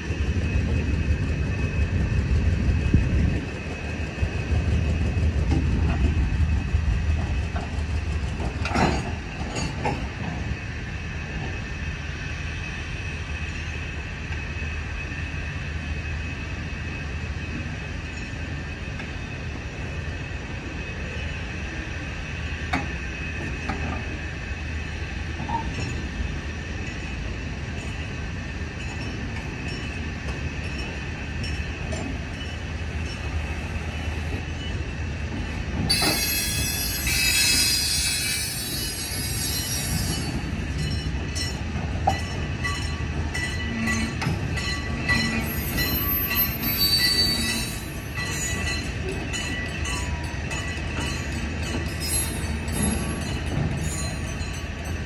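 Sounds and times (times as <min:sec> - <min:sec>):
train wheels rumbling: 0:00.0 - 0:55.0
wheels squealing: 0:35.9 - 0:40.5, 0:44.8 - 0:48.8.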